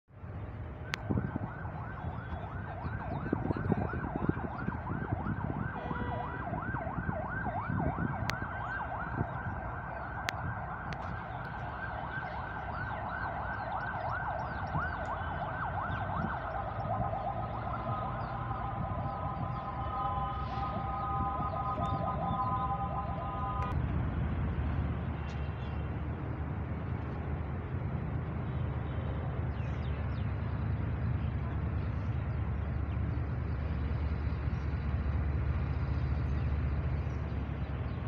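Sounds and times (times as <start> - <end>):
constant low rumble: 0.1 - 38.0
electronic yelp siren wailing: 0.8 - 23.8
multi-note horn: 5.8 - 6.4, 18.4 - 23.8.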